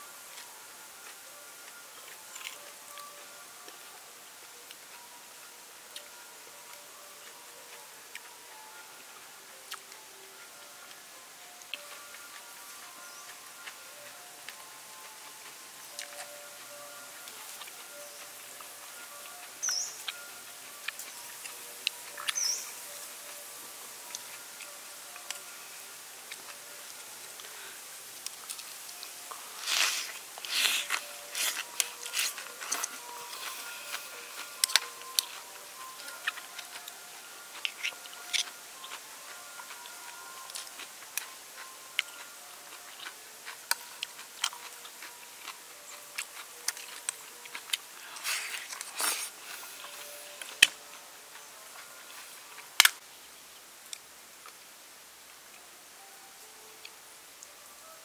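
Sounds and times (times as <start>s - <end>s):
eating raw oyster: 26.2s - 53.0s.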